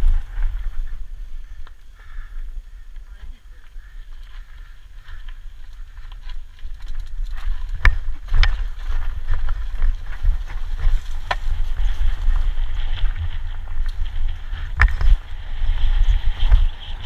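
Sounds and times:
bike rattling: 0.0s - 17.0s
wind rumbling on microphone: 0.0s - 17.0s
tyres crunching over stones: 3.0s - 15.2s.

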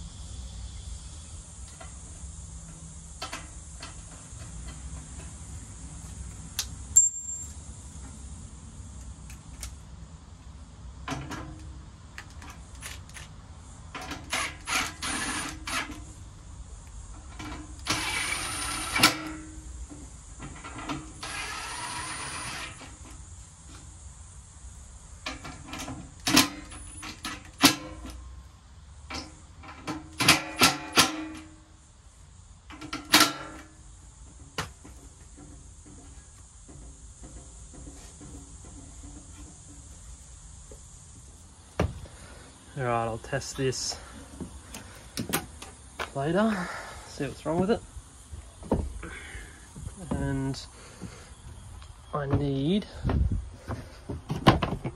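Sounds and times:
cordless drill running: 14.4s - 15.8s, 17.8s - 19.2s, 21.2s - 22.8s.

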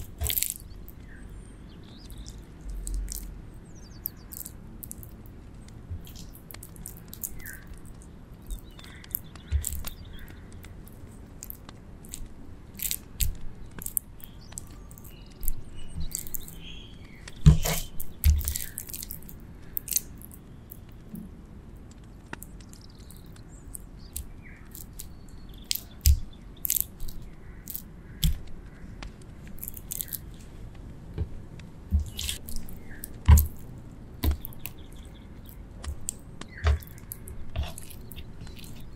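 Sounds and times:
meat squishing on skewers: 0.0s - 21.0s, 22.4s - 30.8s, 31.8s - 38.9s
sharp knocks: 17.3s - 18.6s.

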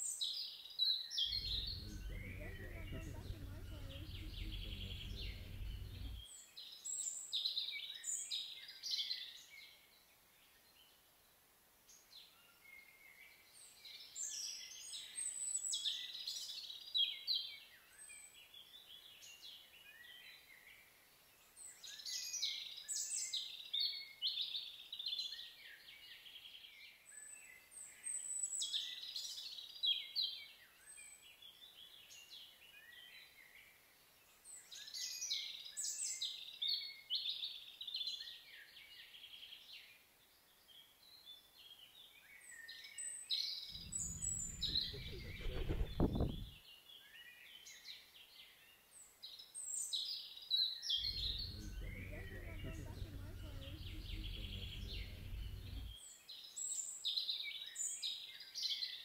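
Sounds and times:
bird chirps: 1.3s - 6.2s, 43.8s - 46.6s, 51.0s - 56.1s
songbirds singing: 1.3s - 6.3s, 43.5s - 47.8s, 49.8s - 57.4s.

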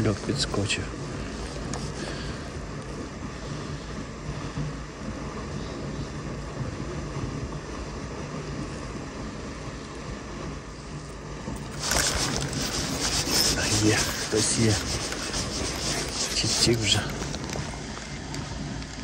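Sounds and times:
moving water: 0.0s - 19.0s
wind hiss: 11.6s - 19.0s.

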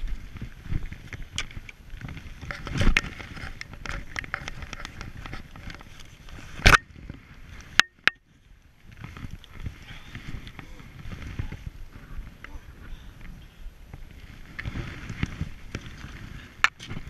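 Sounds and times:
clicks and scuffs from skis: 0.1s - 7.8s, 14.0s - 17.0s.

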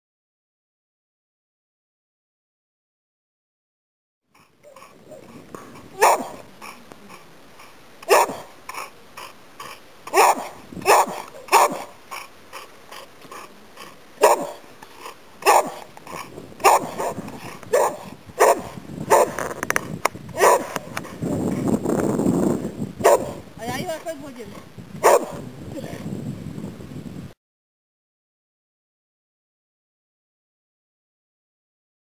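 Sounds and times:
dog barking: 6.0s - 6.8s, 8.1s - 8.9s, 10.1s - 12.3s, 14.2s - 14.6s, 15.4s - 19.4s, 20.4s - 20.9s, 23.0s - 23.4s, 25.0s - 25.4s.

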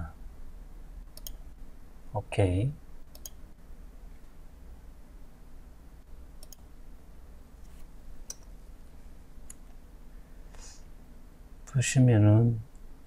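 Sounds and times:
faint low microphone hum: 0.0s - 13.0s
computer mouse clicking: 1.1s - 1.4s, 3.1s - 3.4s, 6.4s - 6.7s, 8.2s - 8.6s.

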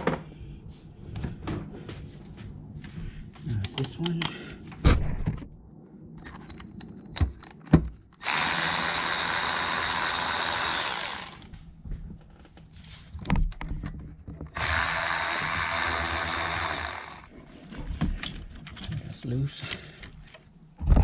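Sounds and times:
electric ratchet running: 8.2s - 11.5s, 14.5s - 17.3s.

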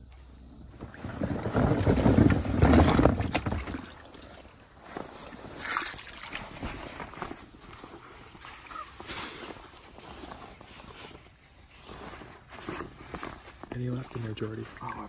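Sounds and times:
marsh water sloshing and splashing: 0.7s - 8.7s, 12.6s - 15.0s.

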